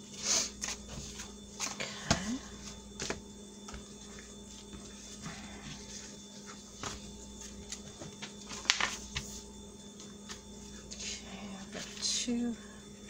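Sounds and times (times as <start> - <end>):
faint steady hum: 0.0 - 13.0
paper rustling and tapping: 7.7 - 9.3.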